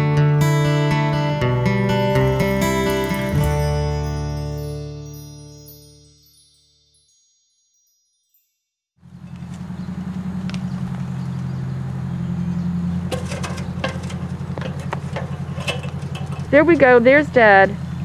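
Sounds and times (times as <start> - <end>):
engine idling hum: 0.5 - 4.2, 9.0 - 18.0.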